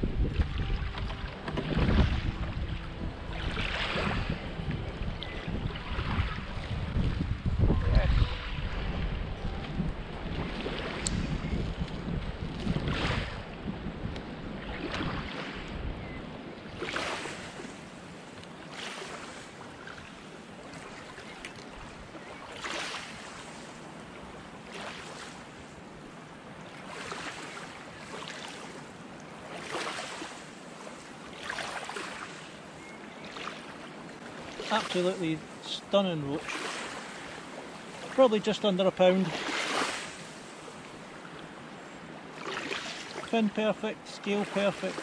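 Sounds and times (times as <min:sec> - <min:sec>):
wind buffeting microphone: 0:00.0 - 0:17.7
small waves lapping at shore: 0:00.0 - 0:45.0.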